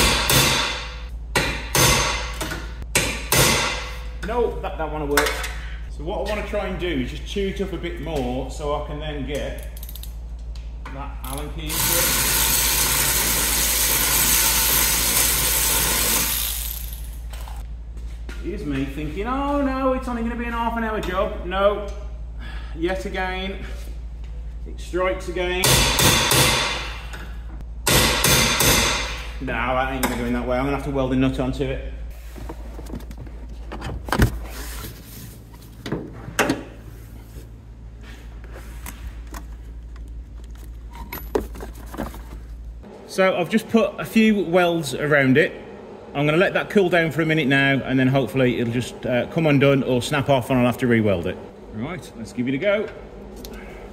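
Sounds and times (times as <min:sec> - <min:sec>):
steady low hum: 0:00.0 - 0:53.9
power tool whirring: 0:11.7 - 0:17.0.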